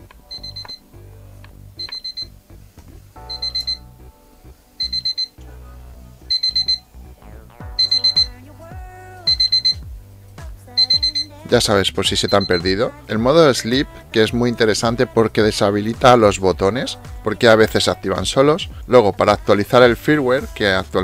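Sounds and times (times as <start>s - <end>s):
background music: 0.0s - 21.0s
quick high beeps: 0.3s - 0.8s, 1.8s - 2.3s, 3.3s - 3.8s, 4.8s - 5.4s, 6.3s - 6.9s, 7.8s - 8.4s, 9.3s - 9.8s, 10.8s - 11.3s, 12.2s - 12.8s.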